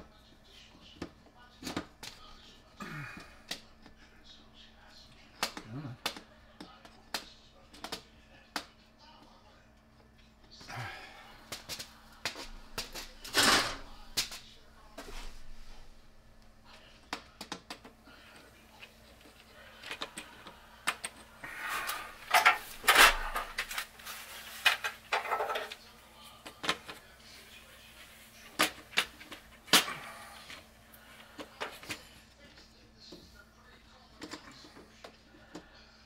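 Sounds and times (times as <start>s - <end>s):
clicks taps and knocks: 16.7s - 18.4s
plastic rustling: 18.2s - 32.1s.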